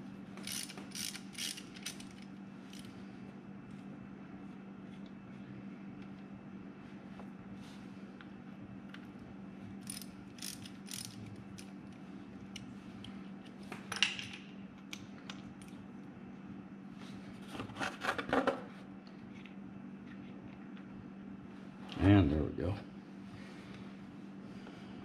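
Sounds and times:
ratchet wrench clicking: 0.4s - 2.9s, 9.8s - 11.2s.

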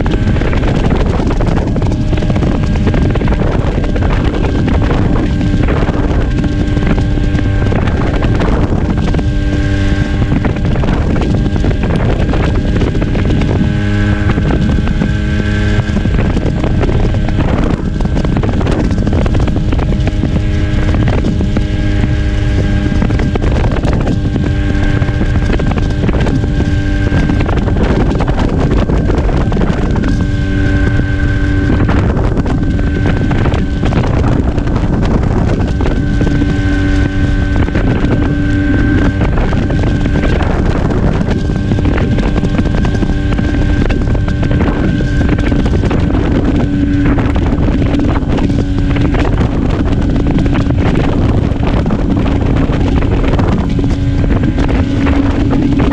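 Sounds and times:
scooter engine running: 0.0s - 55.9s
wind rumble on microphone: 0.0s - 55.9s.

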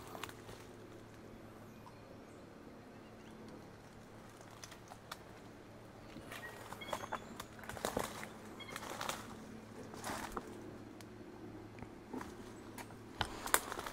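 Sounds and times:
crackles in undergrowth: 0.0s - 1.4s, 3.2s - 13.9s
snaps and rustles: 3.4s - 5.4s, 7.4s - 11.1s, 12.1s - 13.9s
high bird chirps: 6.3s - 7.5s.

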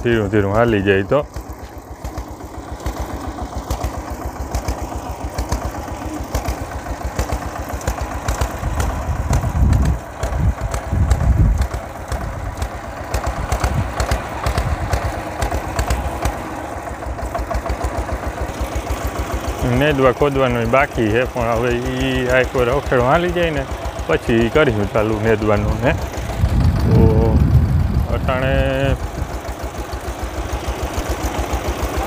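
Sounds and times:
small tractor engine running: 0.0s - 32.0s.

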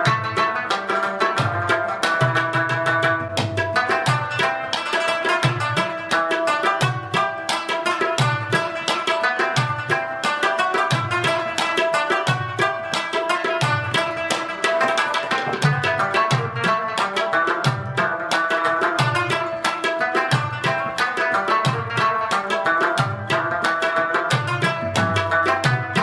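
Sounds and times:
plucked lute notes: 0.0s - 26.0s
steady drum beat: 13.6s - 16.8s, 24.4s - 26.0s.

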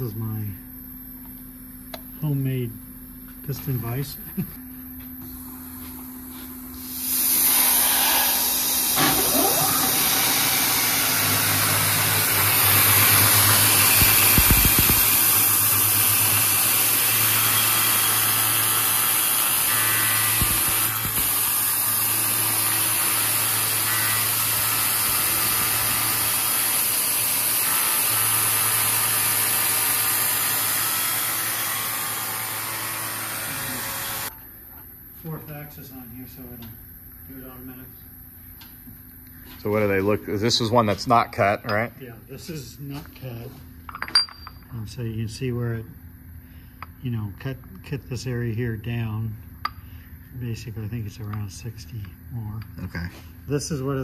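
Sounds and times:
milling machine cutting metal: 7.0s - 34.3s.

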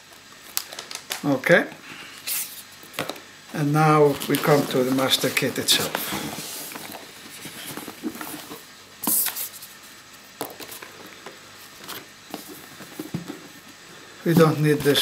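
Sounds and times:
cardboard packaging rustling: 3.8s - 13.6s.

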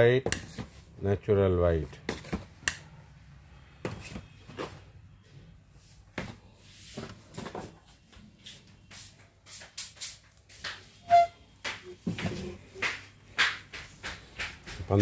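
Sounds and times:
knocks and clicks of handling: 10.6s - 15.0s.

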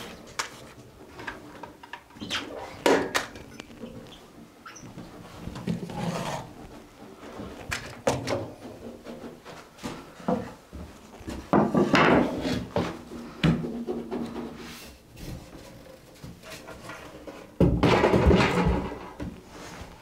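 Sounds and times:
knocks and clatters: 16.3s - 19.4s.

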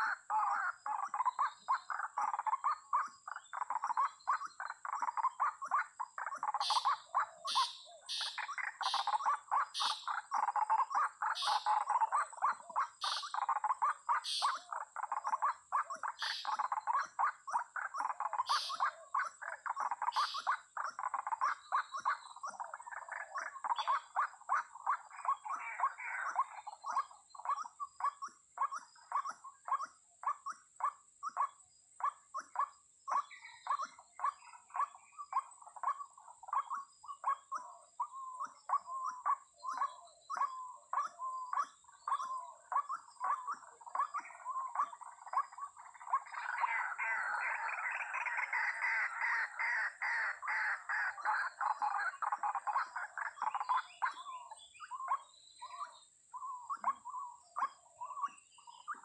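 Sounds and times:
waterhens calling harshly: 6.5s - 12.1s, 46.2s - 53.7s.

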